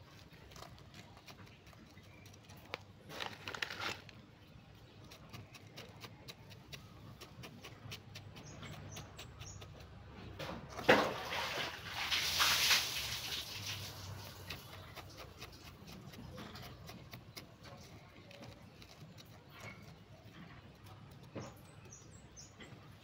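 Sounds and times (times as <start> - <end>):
soil rustling: 0.0 - 22.5
scrape: 10.4 - 17.0.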